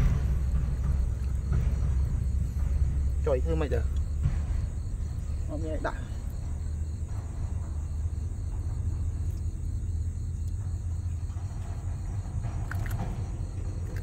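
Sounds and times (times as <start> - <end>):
faint high insect trill: 0.0 - 14.0
steady low rumble: 0.0 - 14.0.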